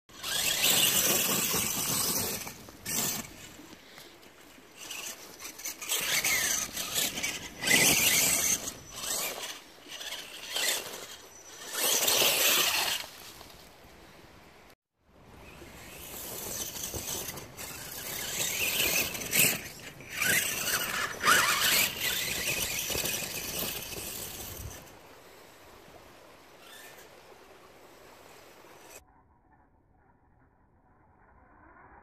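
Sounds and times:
rc car motor whining: 0.1 - 4.0, 4.8 - 13.3, 15.7 - 24.9, 26.6 - 27.1
tyres spinning on dirt: 0.1 - 13.6, 15.4 - 25.0.

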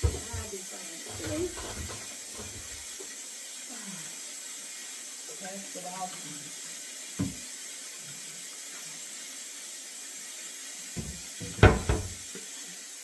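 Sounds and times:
clunks of things in sink: 0.0 - 0.5, 7.2 - 7.4, 11.0 - 12.3
knock in sink: 0.0 - 0.5, 7.2 - 7.4, 11.0 - 12.4
tap running into sink: 0.0 - 3.2, 7.1 - 7.5, 10.9 - 12.6.

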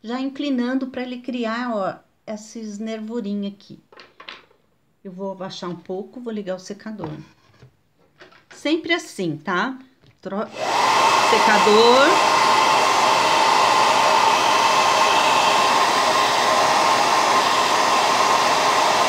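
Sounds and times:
hair dryer blowing: 10.5 - 19.0.

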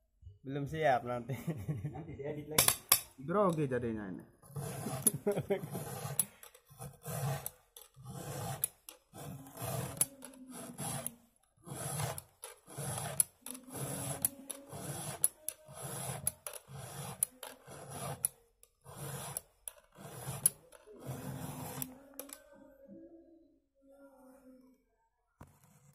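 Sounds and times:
file rasping on chainsaw chain: 4.4 - 22.5.

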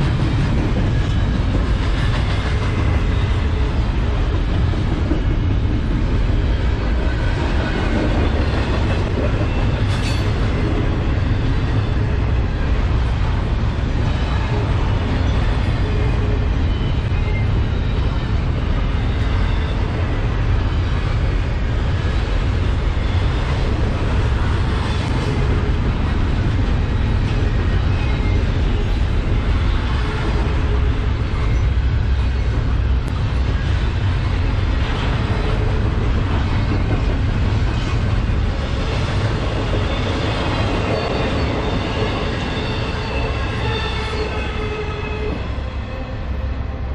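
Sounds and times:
freight train wheels rumbling: 0.0 - 46.9.

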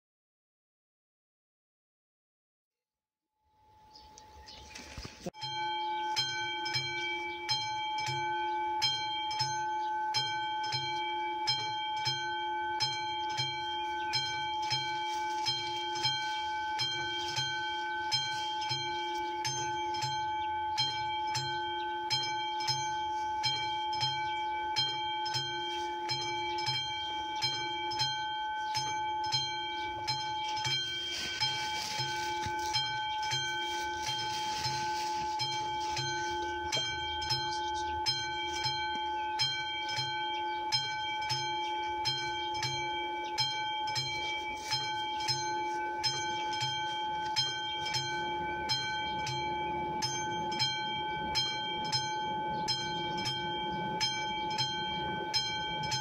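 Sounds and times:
level crossing bell ringing: 5.3 - 56.0.

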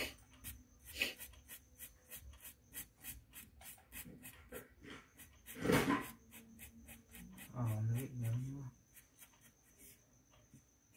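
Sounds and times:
pen scratching on paper: 0.0 - 10.0.

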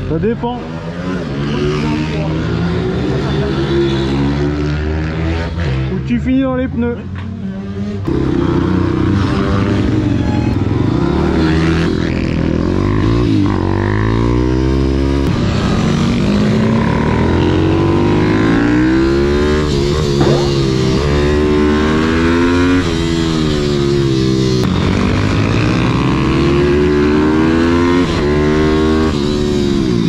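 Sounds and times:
motorbike engine revving: 8.1 - 30.0.

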